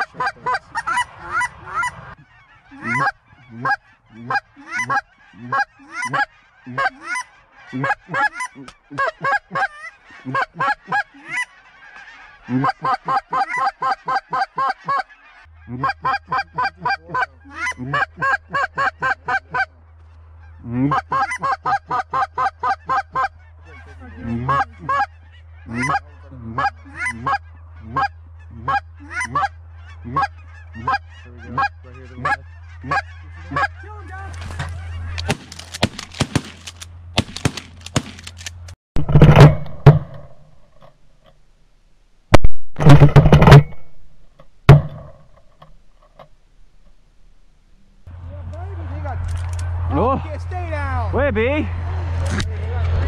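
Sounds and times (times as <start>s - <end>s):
goose call clucks and honks: 0.0s - 36.3s
shotgun blasts: 35.2s - 38.3s.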